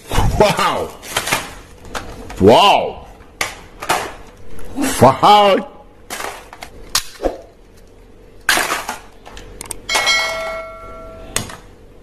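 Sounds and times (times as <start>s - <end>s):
metallic ring: 9.9s - 11.3s.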